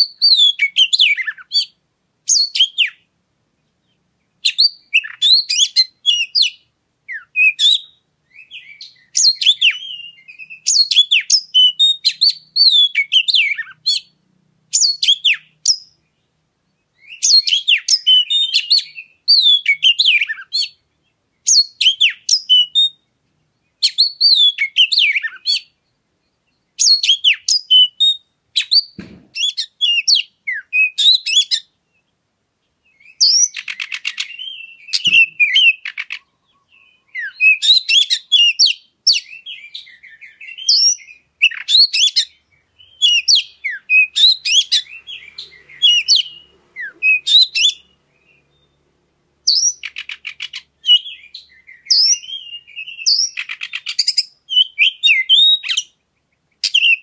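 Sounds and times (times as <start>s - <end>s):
bird whistled song: 0.0s - 3.1s, 3.7s - 32.1s, 32.8s - 57.0s.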